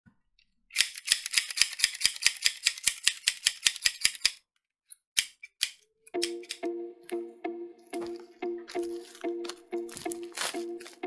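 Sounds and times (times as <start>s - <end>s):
toy pistol clicking: 0.7s - 4.4s, 5.2s - 6.7s.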